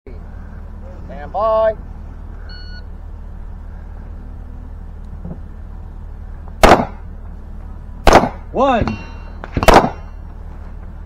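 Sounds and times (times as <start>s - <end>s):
low background rumble: 0.1s - 11.0s
rifle shot: 6.6s - 7.0s, 8.0s - 8.4s, 9.5s - 10.1s.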